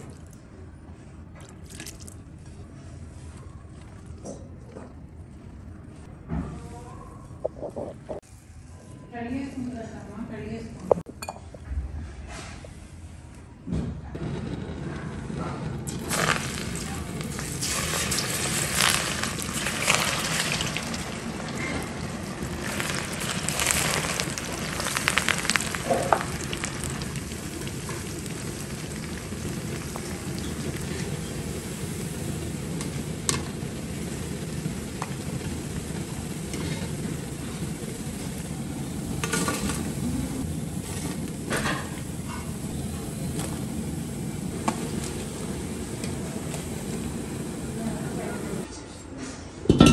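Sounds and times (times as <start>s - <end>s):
food deep-frying in hot oil: 15.9s - 48.7s.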